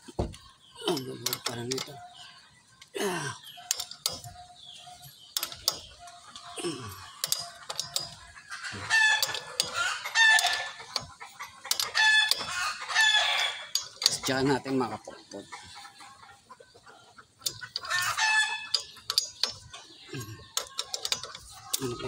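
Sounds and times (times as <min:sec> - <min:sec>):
hand tools knocking on metal: 0:07.2 - 0:08.2, 0:18.7 - 0:22.0.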